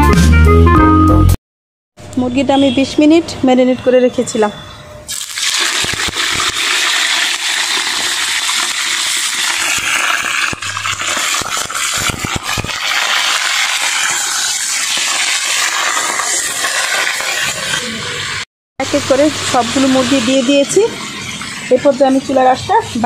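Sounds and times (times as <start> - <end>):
oil crackling and spitting: 5.1 - 18.4
chicken sizzling in hot oil: 5.1 - 21.8.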